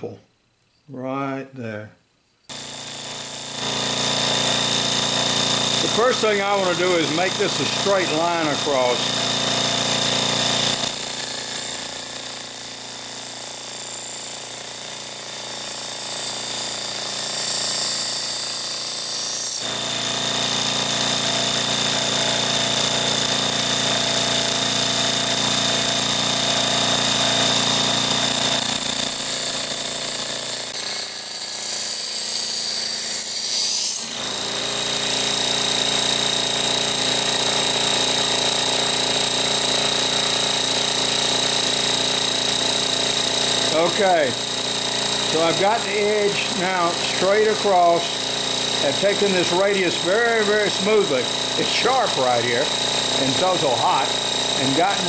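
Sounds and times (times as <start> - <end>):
knife blade grinding on wheel: 2.5 - 19.9, 30.2 - 36.2, 41.5 - 55.0
bench grinder running: 2.5 - 55.0.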